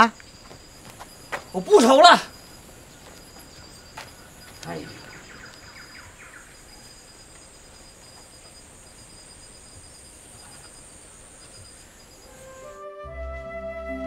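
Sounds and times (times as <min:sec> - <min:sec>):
insects chirping: 0:00.0 - 0:12.8
rapid insect trill: 0:00.0 - 0:12.8.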